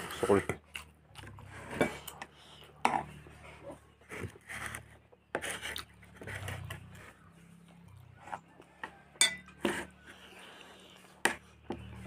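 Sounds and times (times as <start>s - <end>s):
metal spoon scraping a plate: 9.2s - 10.1s.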